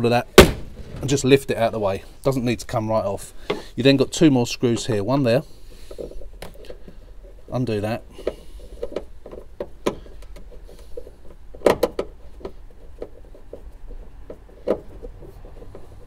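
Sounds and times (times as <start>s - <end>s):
small clicks and knocks: 8.2s - 16.0s.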